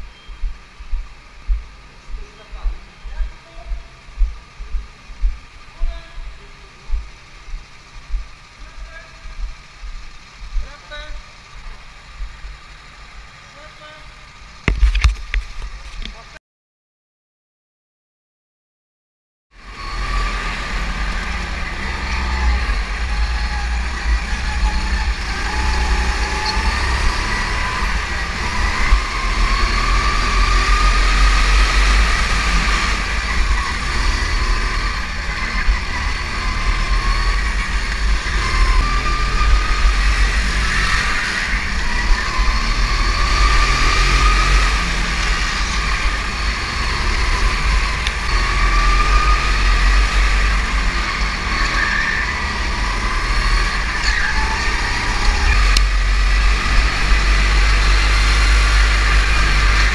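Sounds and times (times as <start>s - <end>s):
go-kart engine whine: 19.6s - 59.9s.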